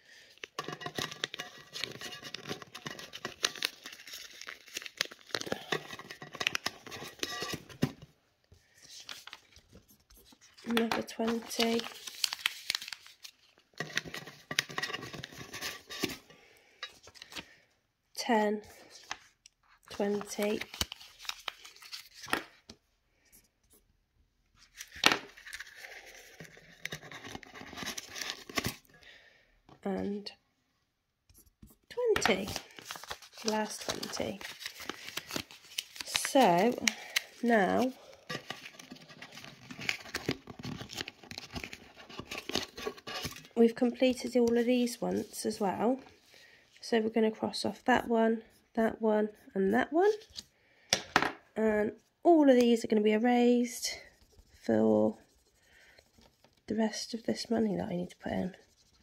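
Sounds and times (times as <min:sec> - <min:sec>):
banknote crinkling: 0:00.5 - 0:07.7, 0:08.7 - 0:16.2, 0:19.0 - 0:22.6, 0:24.6 - 0:28.8, 0:31.4 - 0:43.5.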